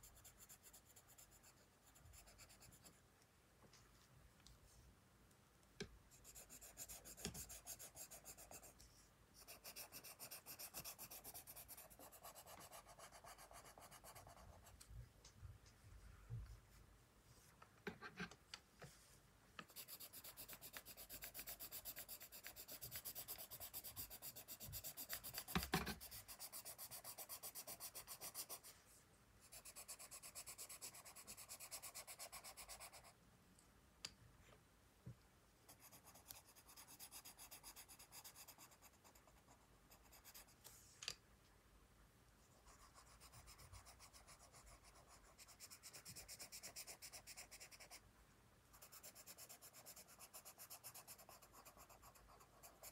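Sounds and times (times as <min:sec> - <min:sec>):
pencil shading on paper: 0:00.0 - 0:03.0, 0:06.1 - 0:14.8, 0:19.6 - 0:28.7, 0:29.4 - 0:33.2, 0:35.7 - 0:40.6, 0:42.5 - 0:48.0, 0:48.7 - 0:52.9.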